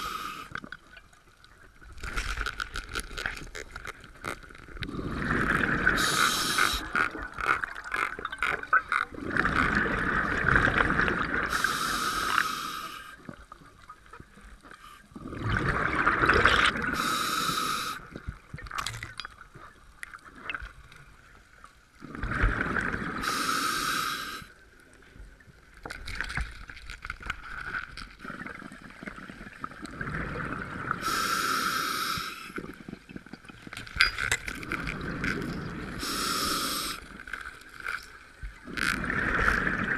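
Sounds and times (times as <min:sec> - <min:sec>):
regulator hiss on inhale: 0:00.0 - 0:00.6, 0:06.0 - 0:07.0, 0:11.5 - 0:13.2, 0:17.0 - 0:18.1, 0:23.2 - 0:24.6, 0:31.0 - 0:32.7, 0:36.0 - 0:37.2.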